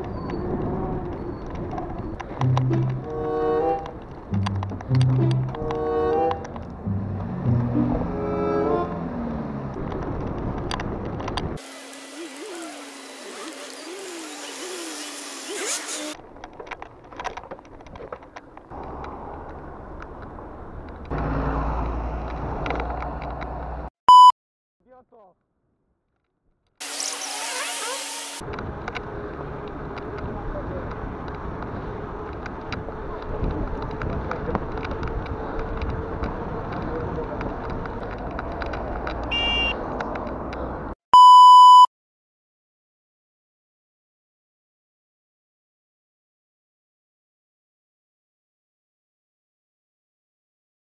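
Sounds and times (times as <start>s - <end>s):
bus engine rumble: 0.0s - 14.7s, 16.2s - 23.9s, 28.4s - 41.0s
beep tone: 24.1s - 24.3s, 39.3s - 39.8s, 41.2s - 41.9s
bicycle rattling over paving: 28.5s - 39.3s
loud electronic beep: 39.3s - 39.8s.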